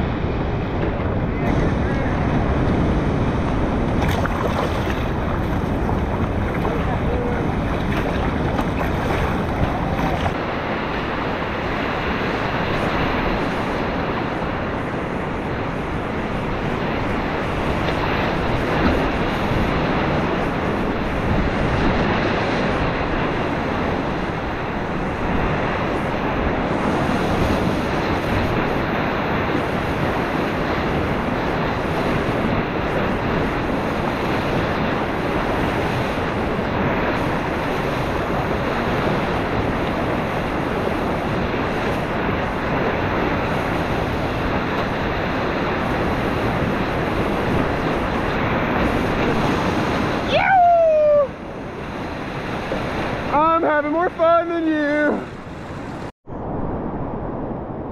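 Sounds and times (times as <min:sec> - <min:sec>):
wind gusts on microphone: 0:00.0 - 0:57.9
whitewater rapids rushing: 0:01.1 - 0:14.8.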